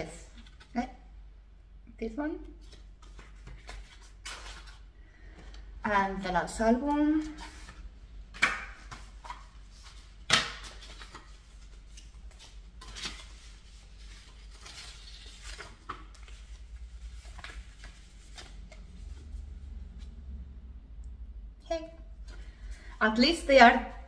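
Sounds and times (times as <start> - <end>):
card and paper rustling: 2.6 - 5.5, 8.8 - 19.5.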